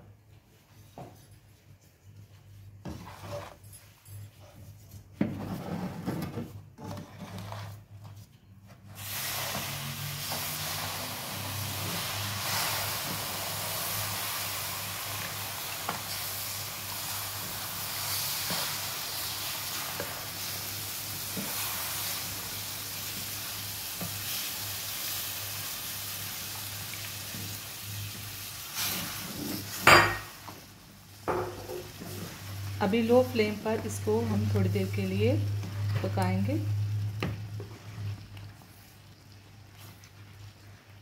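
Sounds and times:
spatula scraping a pan: 2.8 - 8.2
milk sizzling in hot pan: 8.9 - 41.0.

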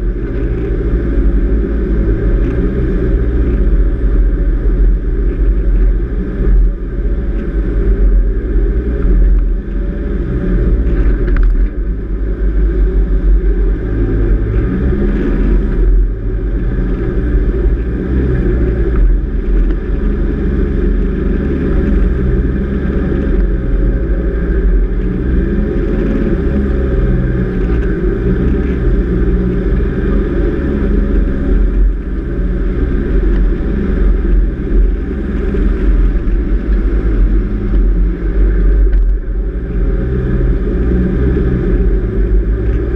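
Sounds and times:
vehicle engine driving on sand: 0.0 - 42.9.

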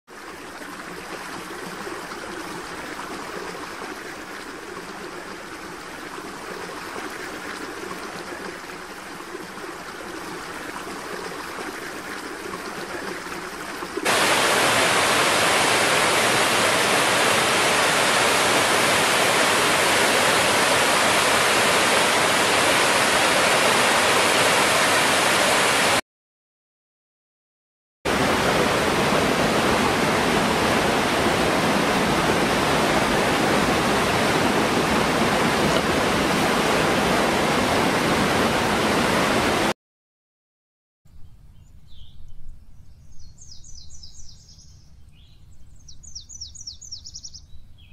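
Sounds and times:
waterfall and rapids rushing: 0.2 - 26.0, 28.1 - 39.8.

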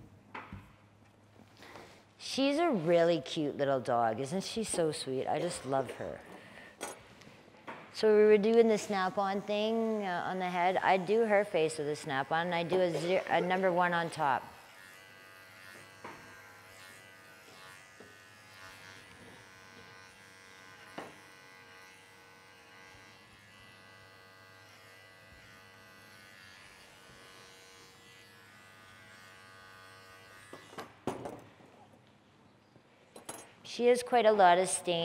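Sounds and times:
electric clipper buzzing: 8.0 - 31.2.

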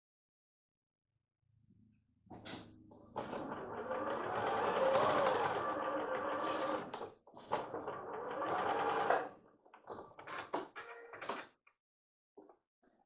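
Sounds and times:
sewing machine stitching: 3.1 - 9.4.

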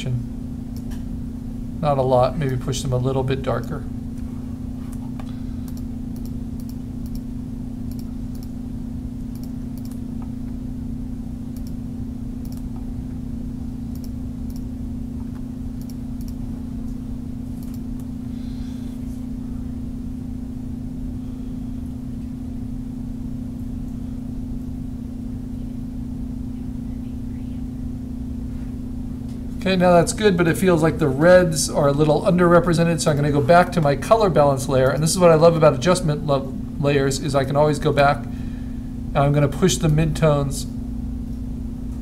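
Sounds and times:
low electrical hum: 0.0 - 42.0
computer mouse clicks: 4.9 - 7.2, 7.9 - 8.5, 9.3 - 10.3, 11.6 - 11.8, 12.4 - 12.8, 13.9 - 14.6, 15.2 - 16.4.

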